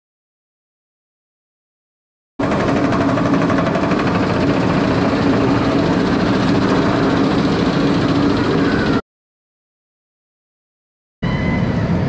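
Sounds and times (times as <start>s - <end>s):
roller coaster rumbling on track: 2.4s - 9.0s, 11.2s - 12.0s.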